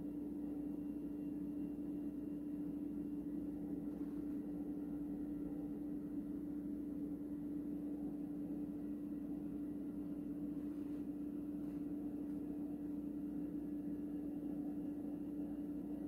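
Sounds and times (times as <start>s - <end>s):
steady hum: 0.0s - 16.0s.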